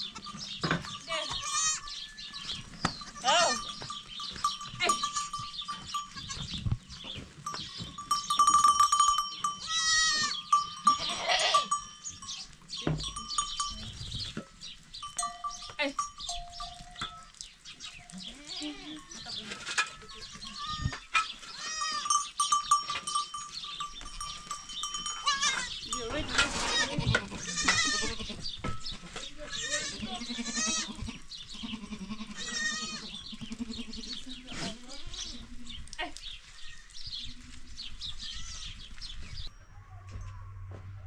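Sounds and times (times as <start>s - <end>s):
goat bells clanking: 0.0s - 34.0s
goats bleating: 1.1s - 6.5s, 9.4s - 11.8s, 18.2s - 19.2s, 20.0s - 22.2s, 25.0s - 28.5s, 29.4s - 35.4s.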